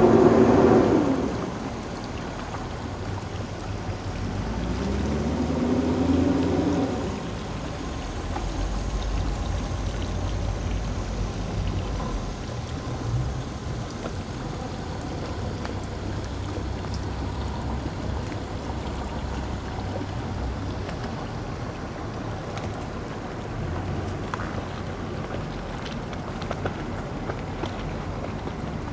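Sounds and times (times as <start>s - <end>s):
water noise: 0.0s - 28.9s.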